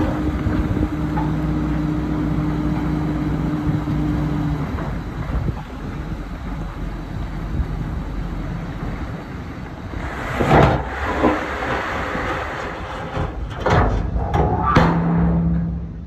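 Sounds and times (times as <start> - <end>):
dump truck engine running: 0.0 - 16.0
dirt and rocks sliding out: 10.0 - 14.0.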